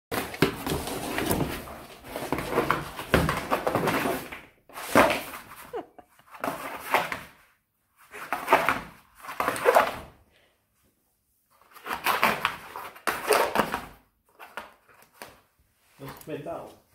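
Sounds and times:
cardboard scraping and thudding: 0:00.1 - 0:05.6
dog paws scrabbling on cardboard: 0:00.1 - 0:05.7.

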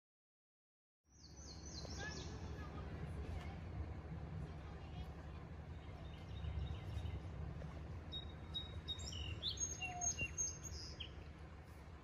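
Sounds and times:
birds singing: 0:01.1 - 0:02.8, 0:05.6 - 0:11.6
low steady rumble: 0:01.1 - 0:12.0.

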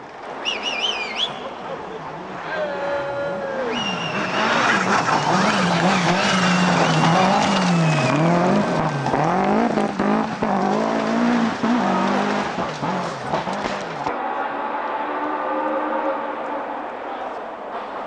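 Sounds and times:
rally car engine revving: 0:03.7 - 0:18.0
tyres scrabbling on gravel: 0:04.6 - 0:13.0.

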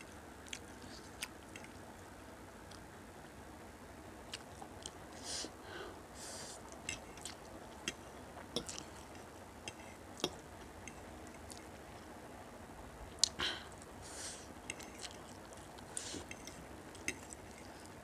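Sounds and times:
wet chewing with smacks: 0:00.1 - 0:02.0, 0:02.6 - 0:02.9, 0:04.3 - 0:05.0, 0:06.6 - 0:12.1, 0:14.6 - 0:18.0
slurping noodles: 0:14.1 - 0:17.9.

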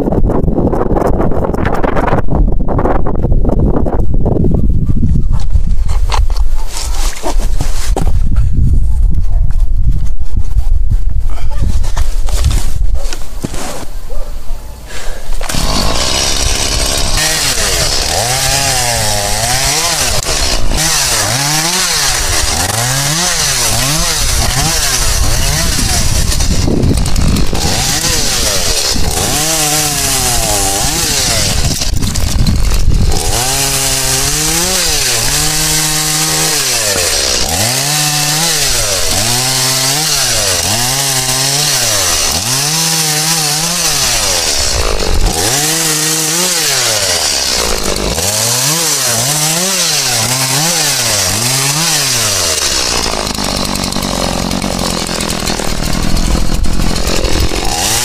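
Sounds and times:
chainsaw cutting branches: 0:14.9 - 0:58.0.

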